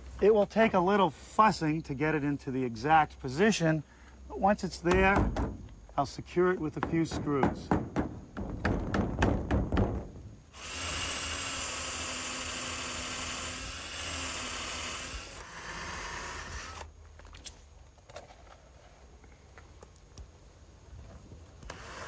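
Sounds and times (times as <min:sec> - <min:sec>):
handling knocks: 0:04.8 - 0:05.7, 0:06.5 - 0:10.3
power drill driving screws: 0:10.5 - 0:16.9, 0:21.7 - 0:22.0.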